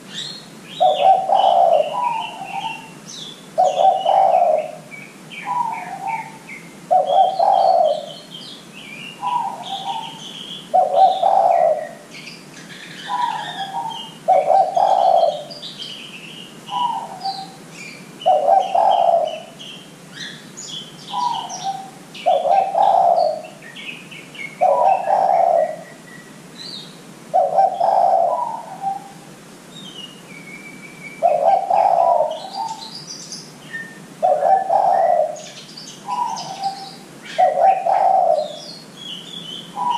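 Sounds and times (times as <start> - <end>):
dove cooing: 0.0 - 3.0, 3.6 - 8.4, 9.1 - 15.7, 16.7 - 20.3, 21.1 - 23.6, 24.6 - 26.0, 27.3 - 29.3, 31.2 - 33.0, 34.2 - 38.7
small birds chirping: 0.0 - 39.9.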